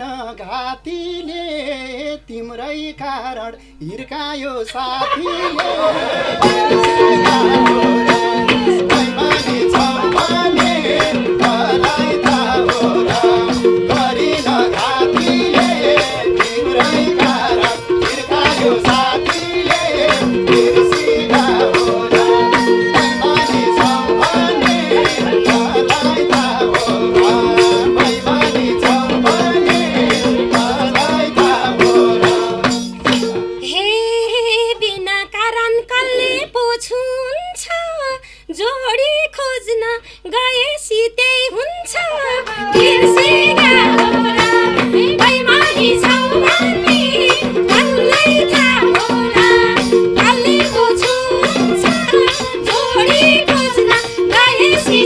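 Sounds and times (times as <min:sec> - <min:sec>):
men singing folk song: 0:00.0 - 0:33.3, 0:42.2 - 0:55.0
fast hand drum rhythm: 0:04.9 - 0:33.6, 0:42.0 - 0:55.0
harmonium: 0:05.0 - 0:36.5.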